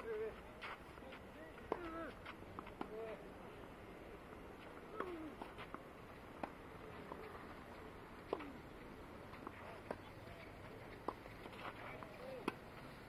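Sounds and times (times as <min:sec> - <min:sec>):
racket hitting tennis ball: 0:01.6 - 0:03.0, 0:04.9 - 0:07.4.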